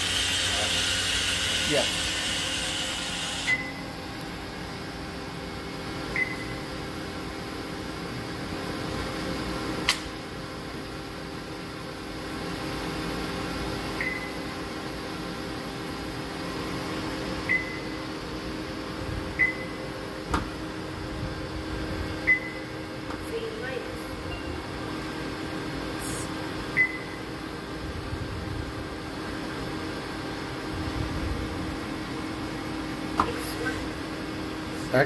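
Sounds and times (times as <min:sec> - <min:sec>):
machine humming: 0:00.0 - 0:06.5.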